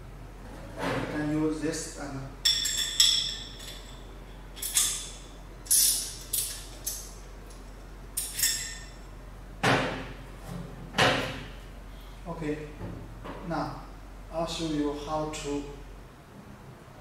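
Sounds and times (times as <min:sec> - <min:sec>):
metal tools clinking on metal: 0:08.2 - 0:09.0.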